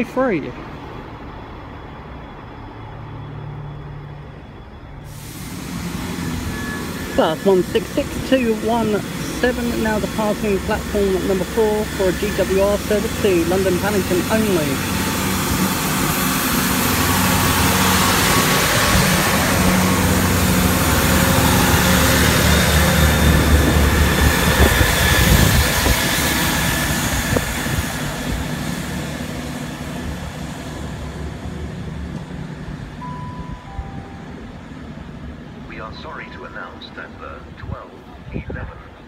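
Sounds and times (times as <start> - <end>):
diesel train engines: 0.0 - 39.0
wheel-on-rail noise: 5.1 - 33.0.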